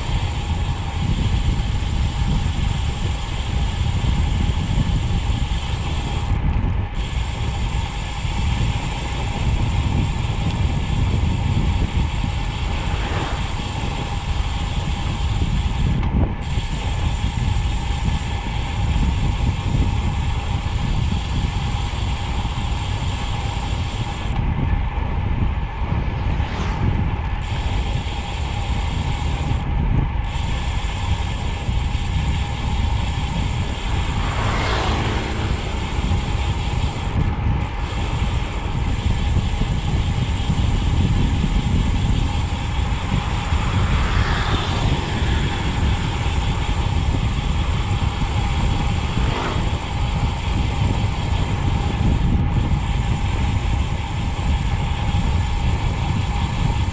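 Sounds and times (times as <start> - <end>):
bicycle freehub buzzing: 0.0 - 56.9
wind rush: 0.0 - 56.9
motorcycle passing: 8.6 - 15.5, 25.3 - 28.5, 31.8 - 53.2.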